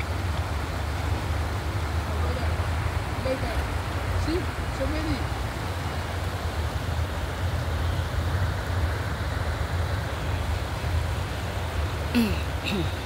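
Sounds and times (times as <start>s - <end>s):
river running over stones: 0.0s - 13.0s.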